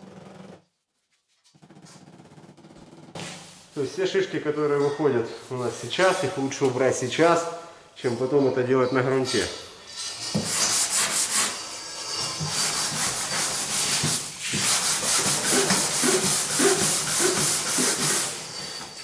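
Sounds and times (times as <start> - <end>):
hand sanding metal: 9.3 - 18.6.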